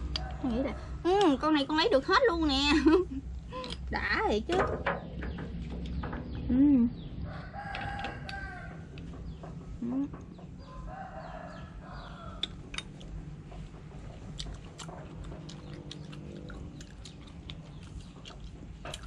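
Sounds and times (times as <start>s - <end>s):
rooster crowing: 7.2s - 9.0s, 10.6s - 12.5s.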